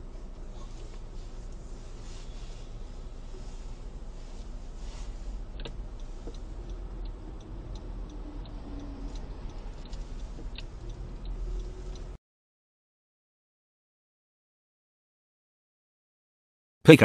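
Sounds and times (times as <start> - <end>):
car cabin engine and road rumble: 0.0 - 12.2
turn signal ticking: 0.0 - 12.2.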